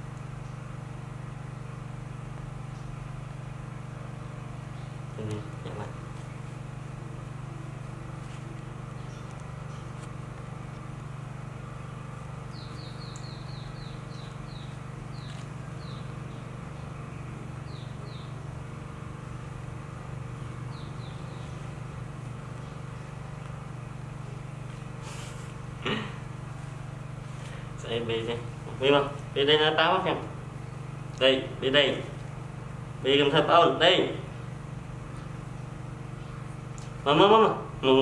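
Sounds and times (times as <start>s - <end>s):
steady low hum: 0.0s - 38.0s
small bird chirping: 8.9s - 10.0s, 12.4s - 18.5s, 20.4s - 23.2s.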